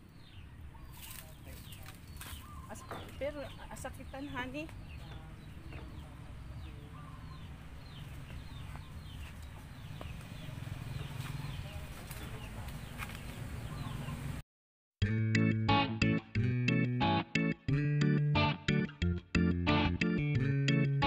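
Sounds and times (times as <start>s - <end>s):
chickens calling: 0.0s - 14.4s
guitar music: 15.0s - 21.0s.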